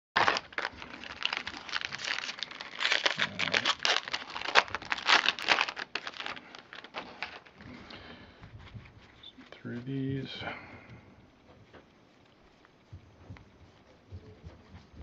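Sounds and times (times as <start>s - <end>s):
foil wrapper crinkling and tearing: 0.2s - 7.6s.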